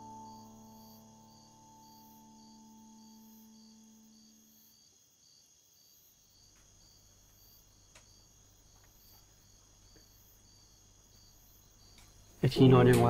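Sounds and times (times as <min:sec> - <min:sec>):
background music: 0:00.0 - 0:04.7
crickets chirping: 0:00.0 - 0:13.0.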